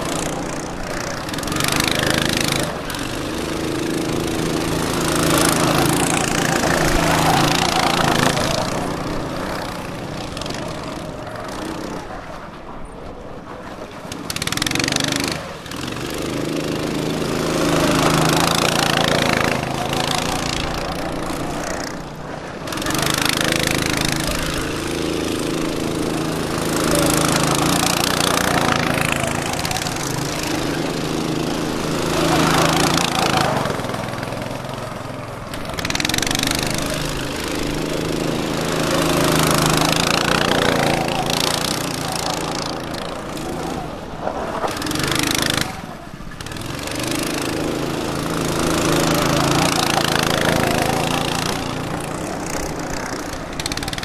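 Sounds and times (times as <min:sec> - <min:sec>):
karts revving past: 0:00.0 - 0:54.0.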